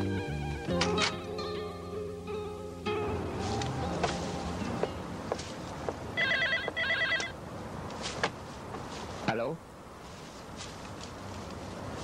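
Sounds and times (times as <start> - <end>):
light footsteps: 3.4 - 6.8, 7.8 - 12.0.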